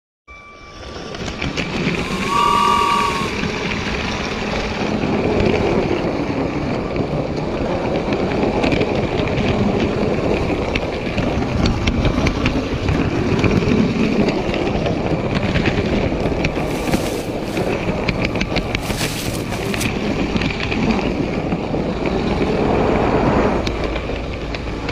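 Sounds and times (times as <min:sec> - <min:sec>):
faint motor whine: 0:02.0 - 0:03.4
brief high tone: 0:02.0 - 0:03.5
toy train wheels and motor rumble: 0:16.2 - 0:20.1.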